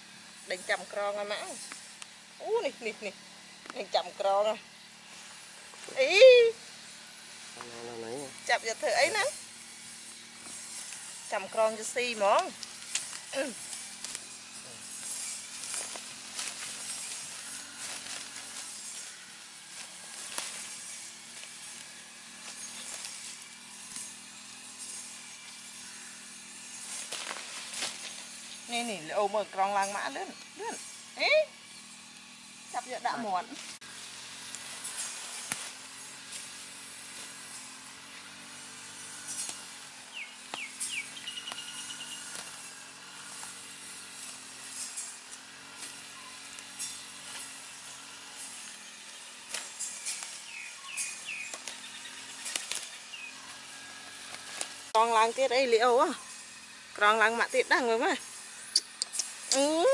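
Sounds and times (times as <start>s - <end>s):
leafy plants rustling: 0.0s - 59.9s
low motor hum: 0.0s - 59.9s
bird whistling and trilling: 40.1s - 42.3s
small sharp snaps: 58.7s - 59.7s.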